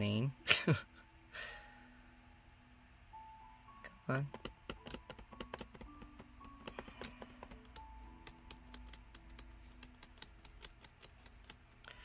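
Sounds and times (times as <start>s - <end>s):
rapid irregular clicking: 4.3s - 11.9s.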